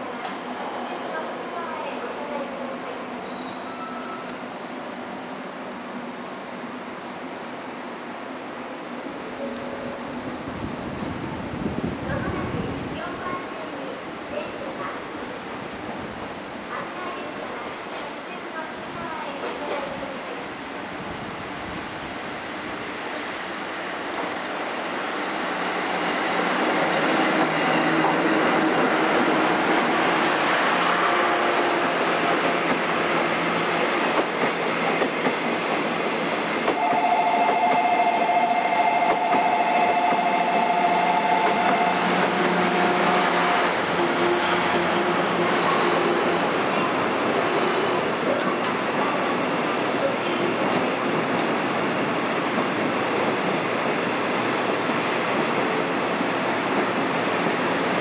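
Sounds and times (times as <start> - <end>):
train wheels rumbling on rails: 10.3 - 58.0.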